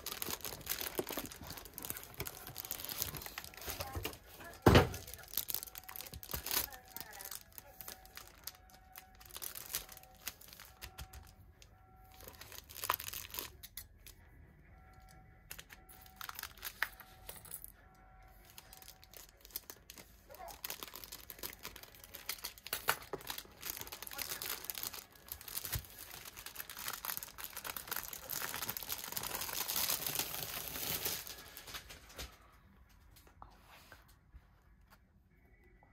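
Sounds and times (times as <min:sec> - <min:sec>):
plastic wrap crinkling: 0:00.0 - 0:11.3, 0:12.1 - 0:14.1, 0:15.5 - 0:17.0, 0:18.4 - 0:32.2.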